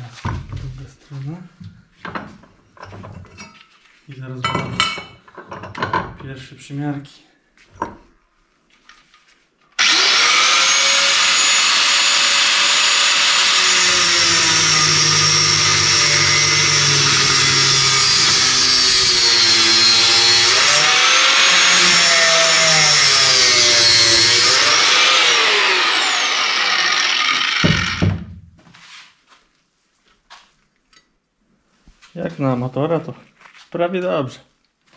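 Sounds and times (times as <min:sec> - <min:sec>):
grinder spinning down whine: 0:09.8 - 0:28.1
angle grinder cutting metal: 0:09.8 - 0:28.2.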